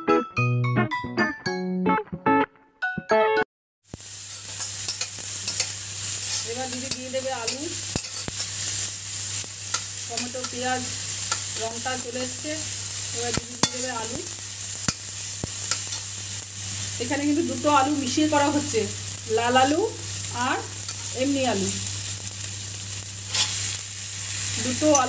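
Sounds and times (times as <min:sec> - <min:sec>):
vegetables sizzling in oil: 0:03.9 - 0:25.0
spatula scraping and tapping pan: 0:04.0 - 0:08.9, 0:09.7 - 0:14.0, 0:14.8 - 0:16.1, 0:23.3 - 0:23.8, 0:24.8 - 0:25.0.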